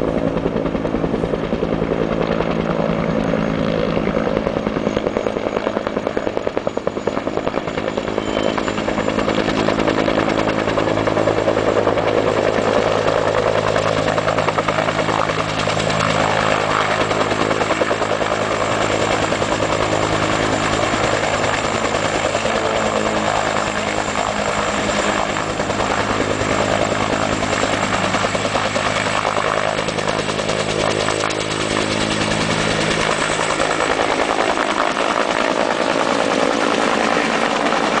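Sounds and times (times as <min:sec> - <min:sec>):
helicopter rotor and turbine: 0:00.0 - 0:38.0.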